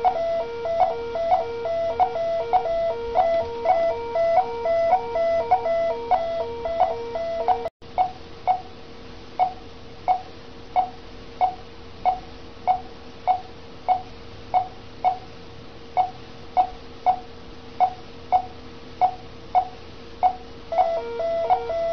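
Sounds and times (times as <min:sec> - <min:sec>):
overlapping alarm beeps: 0:00.0 - 0:07.7, 0:20.3 - 0:21.9
patient monitor beeping: 0:00.0 - 0:07.7, 0:17.8 - 0:21.9
steady low hum: 0:00.0 - 0:21.9.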